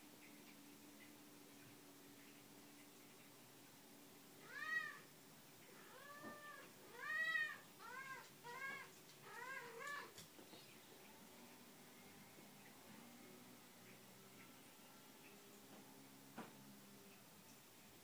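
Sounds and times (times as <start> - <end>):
cat meowing: 4.4 - 5.0, 5.8 - 10.2.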